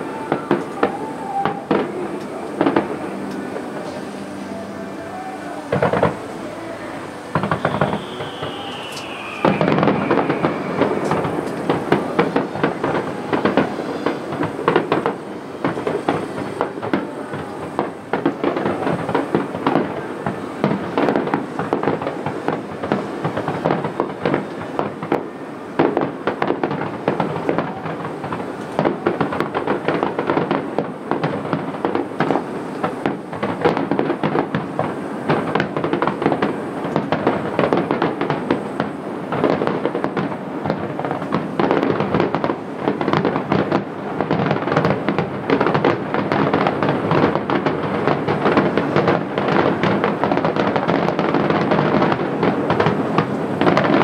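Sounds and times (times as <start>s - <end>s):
fireworks bursts and crackle: 0.0s - 54.0s.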